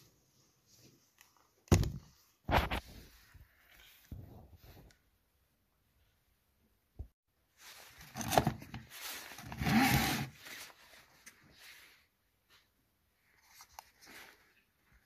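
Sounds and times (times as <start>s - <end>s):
jacket sleeve rustle: 7.5s - 15.0s.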